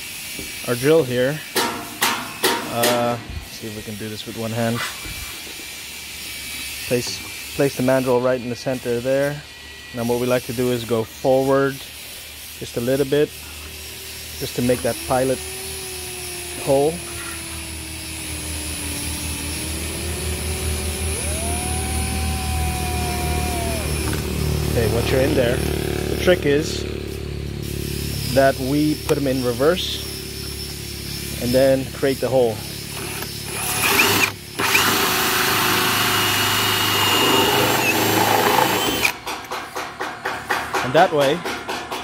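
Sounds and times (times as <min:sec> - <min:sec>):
hole saw cutting plastic: 0:12.7 - 0:25.4, 0:32.9 - 0:39.2
cordless drill boring into plastic: 0:14.4 - 0:21.7, 0:32.9 - 0:39.2.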